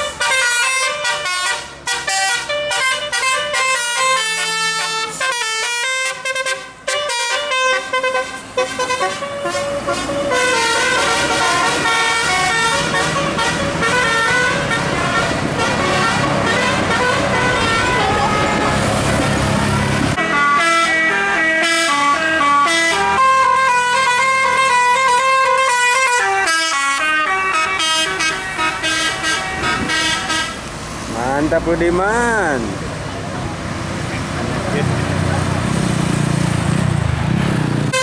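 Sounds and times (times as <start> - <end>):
musical air horns playing tunes: 0.0 - 30.7
bus engine and road noise: 0.0 - 38.0.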